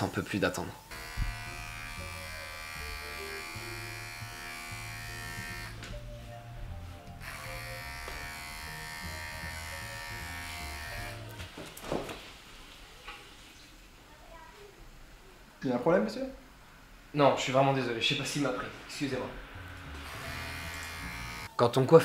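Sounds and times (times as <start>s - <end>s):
electric hair clippers buzzing: 0.9s - 5.9s, 7.2s - 11.4s, 19.7s - 21.5s.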